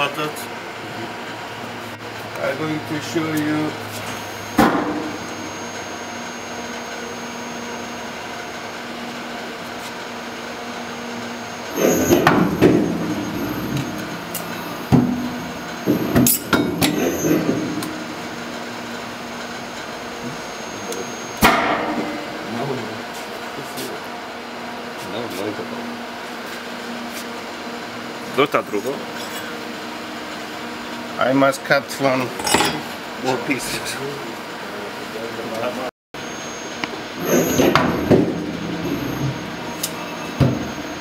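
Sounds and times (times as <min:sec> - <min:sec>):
thin high whine: 0:02.4 - 0:23.0, 0:36.2 - 0:41.0.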